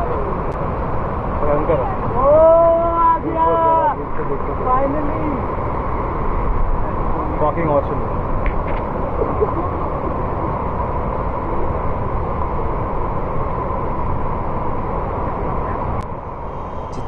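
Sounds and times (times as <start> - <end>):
waterfall rushing: 16.2 - 17.0.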